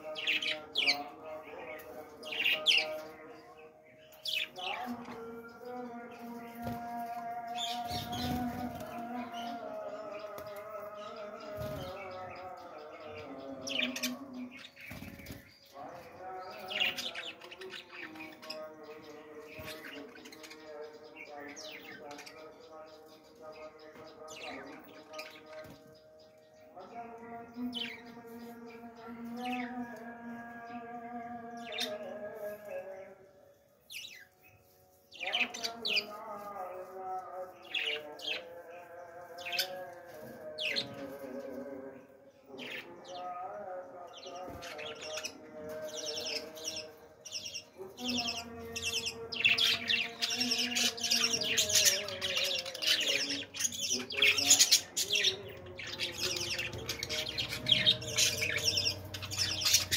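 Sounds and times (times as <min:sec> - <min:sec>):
budgerigars chirping and warbling: 0:00.0 - 0:59.9
budgerigars chirping: 0:46.0 - 0:59.9.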